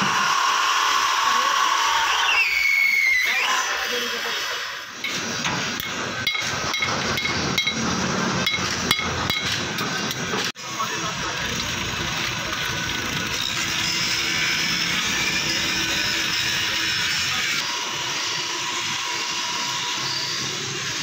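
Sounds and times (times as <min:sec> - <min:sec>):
steady background noise: 0:04.0 - 0:21.0
hammer striking metal: 0:05.0 - 0:10.4.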